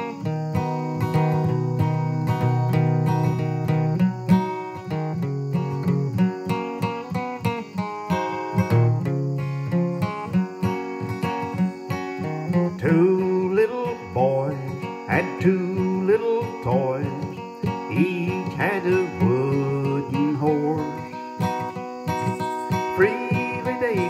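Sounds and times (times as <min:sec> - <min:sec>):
acoustic guitar strummed: 0:00.0 - 0:24.0
man singing: 0:12.5 - 0:21.2, 0:22.1 - 0:24.0.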